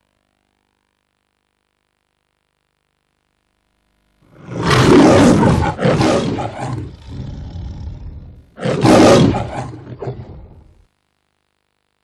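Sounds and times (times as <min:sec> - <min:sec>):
lion roar: 0:04.3 - 0:10.7.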